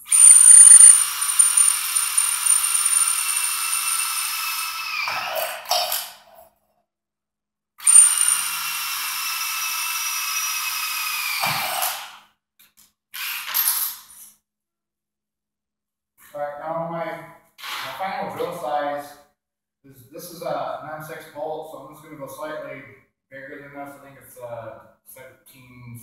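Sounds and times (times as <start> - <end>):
power drill boring through metal: 0.0 - 6.1, 7.8 - 12.2, 13.2 - 13.8.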